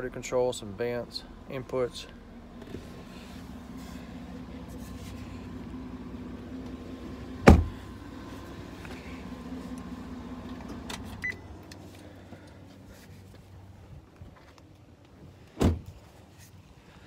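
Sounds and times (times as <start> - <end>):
steady low hum: 0.0 - 14.4
truck door slamming: 7.4 - 7.8, 15.6 - 15.9.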